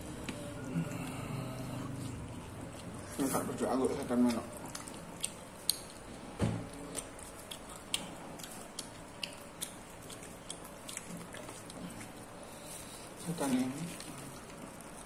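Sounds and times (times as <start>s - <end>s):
person chewing: 0.0s - 15.0s
fingers clicking and crackling food: 1.9s - 12.3s.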